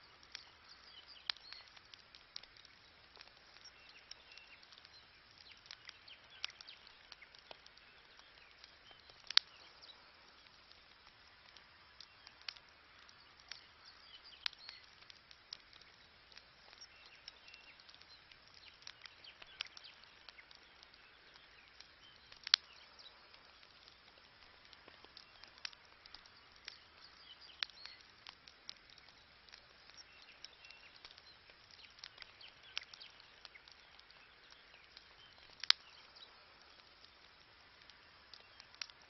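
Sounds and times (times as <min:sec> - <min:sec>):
campfire crackling and popping: 0:00.0 - 0:39.0
faint hiss of burning: 0:00.0 - 0:39.0.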